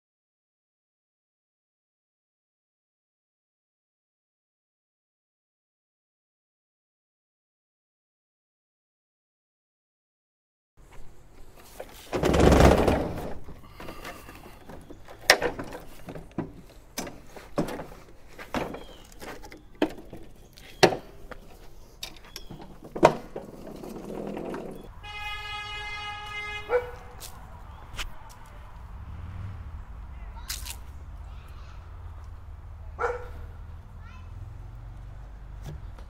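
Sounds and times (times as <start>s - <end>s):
knocks and clicks of mower handling: 10.9s - 25.2s
lawn mower clattering: 11.3s - 25.5s.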